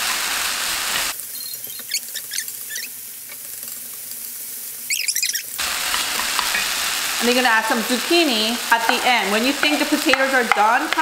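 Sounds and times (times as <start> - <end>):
frying sizzle: 0.0 - 11.0
wooden spoon squeaky scrapes: 1.3 - 3.0, 4.9 - 5.6.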